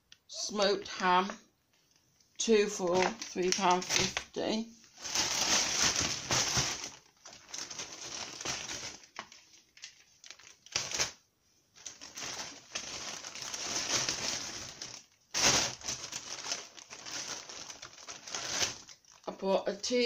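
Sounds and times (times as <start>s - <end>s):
shopping bag rustling: 2.8s - 4.2s, 5.0s - 9.4s, 11.8s - 19.2s.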